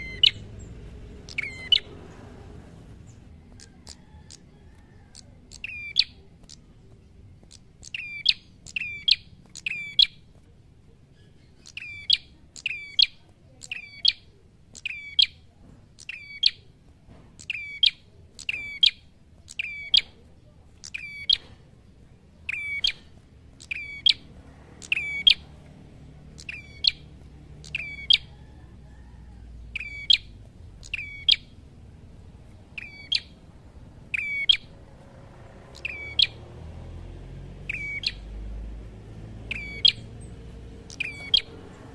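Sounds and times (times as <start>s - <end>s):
bird singing whistled notes: 0.0s - 1.9s, 3.6s - 6.7s, 7.4s - 10.2s, 11.1s - 16.7s, 17.4s - 20.1s, 20.8s - 21.5s, 22.4s - 25.5s, 26.3s - 31.6s, 32.7s - 33.4s, 34.1s - 34.7s, 35.7s - 36.5s, 37.6s - 38.3s, 39.4s - 41.5s.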